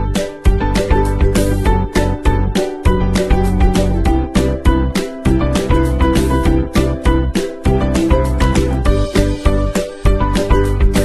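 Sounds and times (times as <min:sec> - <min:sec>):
upbeat music with drum beat: 0:00.0 - 0:11.0.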